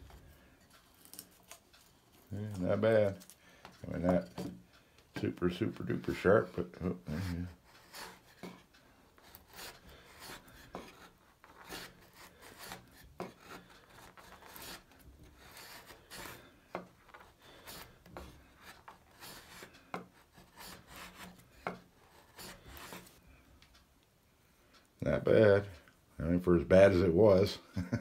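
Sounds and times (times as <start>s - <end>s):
chisel scraping through wood: 0.0s - 4.6s, 5.2s - 23.2s.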